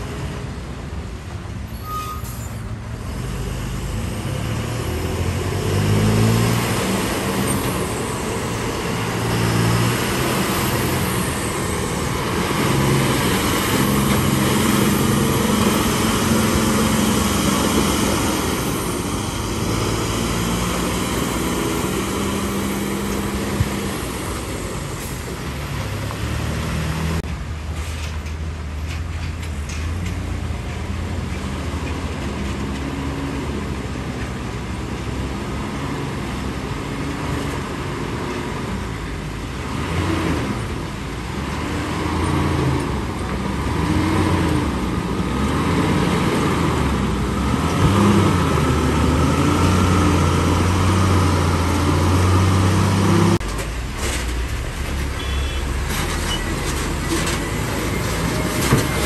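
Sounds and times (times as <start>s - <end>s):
diesel truck engines working: 0.0s - 59.0s.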